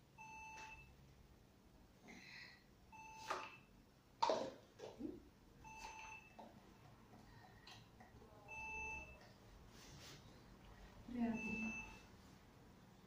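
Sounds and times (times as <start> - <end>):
short electronic beeps: 8.5 - 9.2, 11.3 - 12.1.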